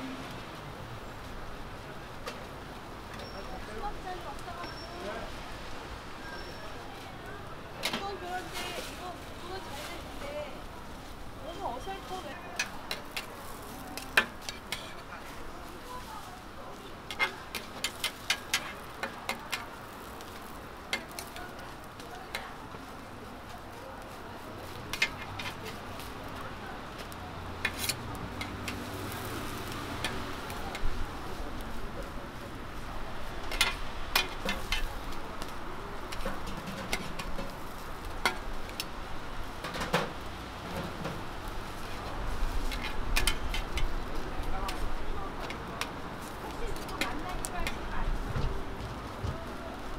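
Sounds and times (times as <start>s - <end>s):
pancakes sizzling in oil: 0.0s - 48.3s
metal spatulas clacking on griddle: 12.6s - 15.1s, 17.1s - 21.6s, 24.9s - 25.7s, 27.6s - 28.8s, 33.4s - 35.5s, 36.1s - 37.6s, 38.2s - 38.9s, 42.7s - 44.0s, 44.6s - 45.6s.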